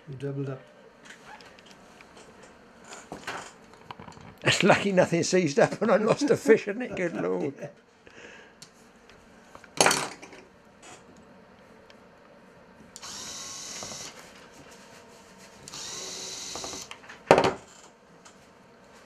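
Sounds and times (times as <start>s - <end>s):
electric screwdriver whirring: 13.0s - 14.2s, 15.7s - 17.0s.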